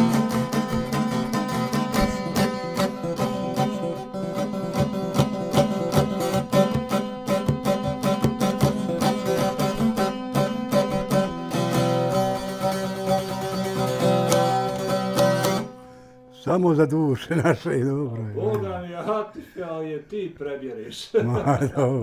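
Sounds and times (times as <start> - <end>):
lute folk melody: 0.0 - 16.2.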